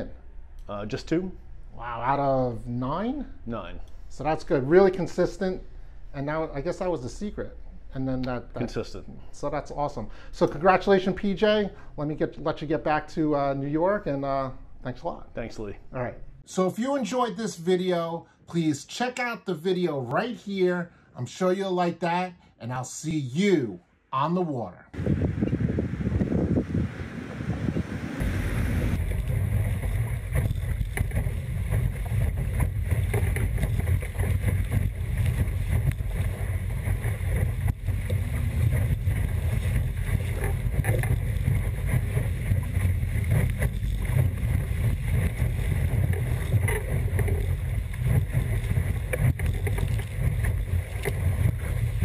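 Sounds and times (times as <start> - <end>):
water rushing past hull: 25.0 - 52.0
wind buffeting microphone: 25.0 - 52.0.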